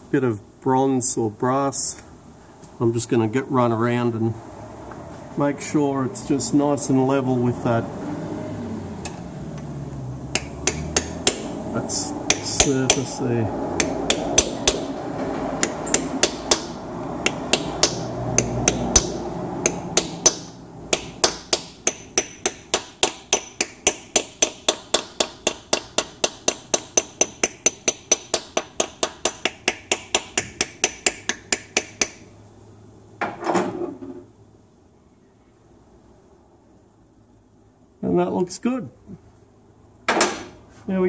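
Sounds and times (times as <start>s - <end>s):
hammer tapping metal: 10.3s - 32.3s.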